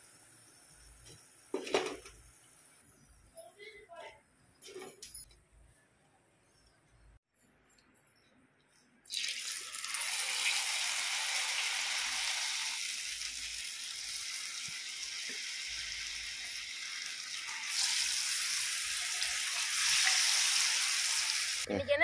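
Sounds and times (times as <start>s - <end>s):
hot oil sizzling in a frying pan: 0.0s - 2.8s, 9.1s - 21.7s.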